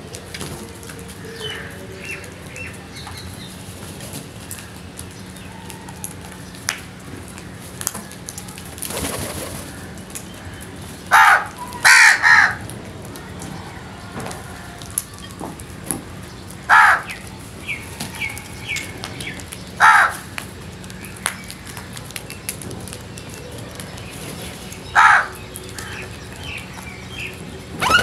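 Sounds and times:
crows cawing: 0:09.6 - 0:12.7, 0:16.7 - 0:17.2, 0:19.8 - 0:20.4, 0:24.9 - 0:26.2
wingbeats: 0:21.2 - 0:28.0.

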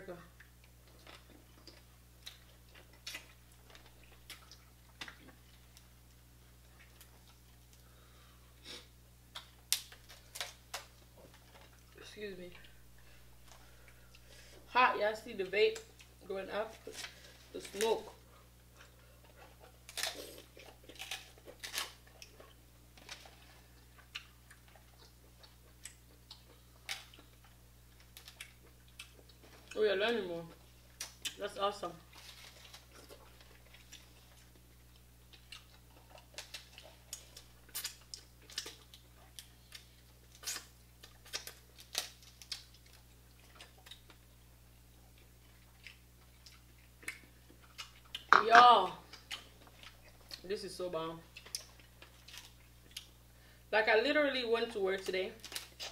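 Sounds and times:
low steady hum: 0:00.0 - 0:55.9
crab shells cracking: 0:19.8 - 0:23.3, 0:33.7 - 0:44.2, 0:55.4 - 0:55.9.

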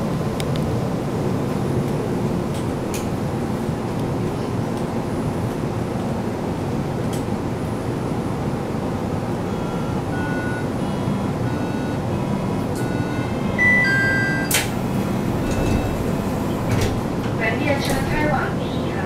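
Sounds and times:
people-mover car hum: 0:06.4 - 0:19.0
door-warning chime beeps: 0:09.5 - 0:17.2
doors sliding shut with a knock: 0:14.5 - 0:18.6.

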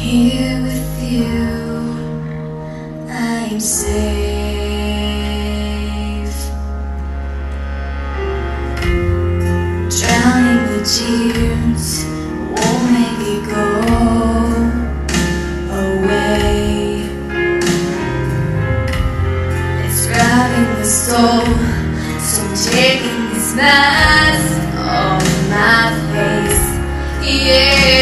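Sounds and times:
woman singing a slow ballad: 0:00.0 - 0:06.9, 0:09.9 - 0:18.0, 0:19.6 - 0:28.0
instrumental accompaniment: 0:00.0 - 0:28.0
low bass notes: 0:00.0 - 0:28.0.

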